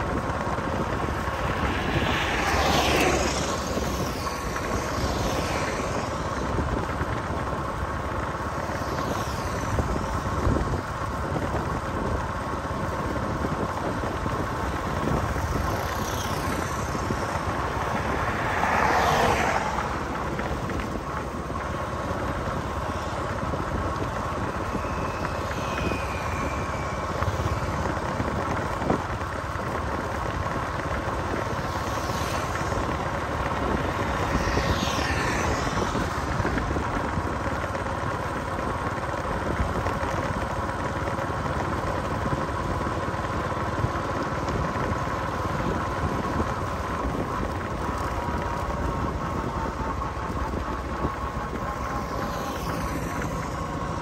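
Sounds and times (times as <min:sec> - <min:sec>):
engine and road noise hum: 0:00.0 - 0:54.0
vehicles passing: 0:00.0 - 0:54.0.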